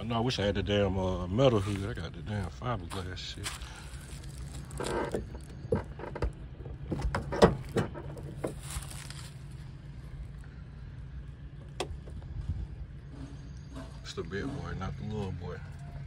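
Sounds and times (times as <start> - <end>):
steady low hum: 0.0 - 16.0
hood latch and hinges clicking: 4.8 - 8.6, 11.7 - 12.2.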